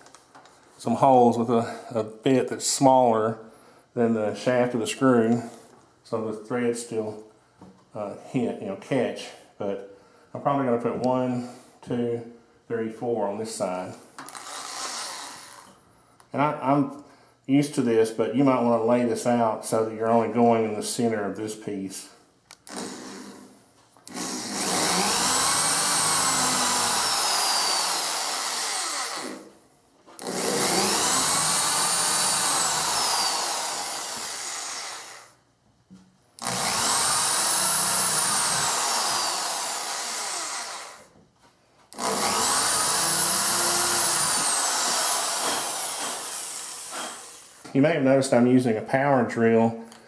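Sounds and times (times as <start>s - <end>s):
electric drill boring into wood: 14.2s - 15.7s, 22.6s - 23.5s, 24.1s - 29.5s, 30.2s - 35.3s, 36.4s - 41.1s, 41.9s - 47.7s.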